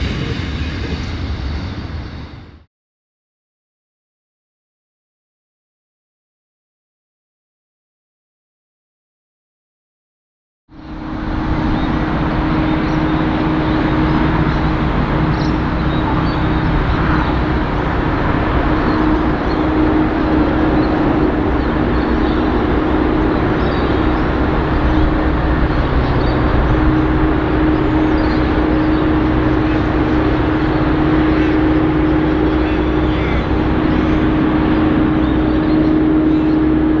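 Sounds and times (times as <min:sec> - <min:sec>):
diesel locomotive engines running: 0:00.0 - 0:02.7, 0:10.7 - 0:37.0.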